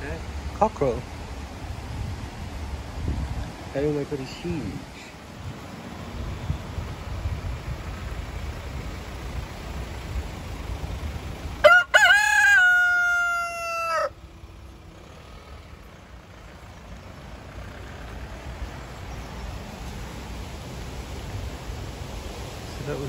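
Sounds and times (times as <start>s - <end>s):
cockerel crowing: 11.6s - 14.3s.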